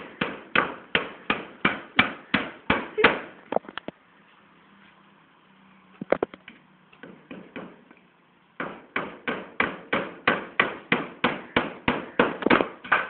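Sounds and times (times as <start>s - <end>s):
hammer nailing into wood: 0.1s - 3.3s, 7.0s - 7.8s, 8.6s - 13.0s.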